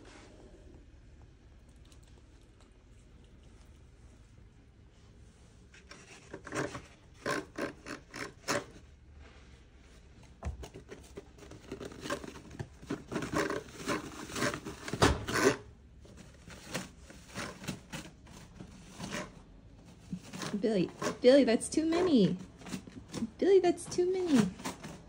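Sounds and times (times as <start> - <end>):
paper towel rustling and tearing: 10.9 - 25.0.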